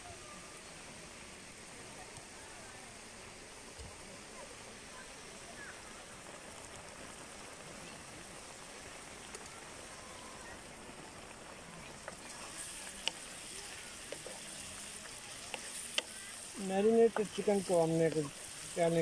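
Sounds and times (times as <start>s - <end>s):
chicken sizzling in hot oil: 0.0s - 19.0s
wooden spatula knocking a pan: 17.1s - 17.4s.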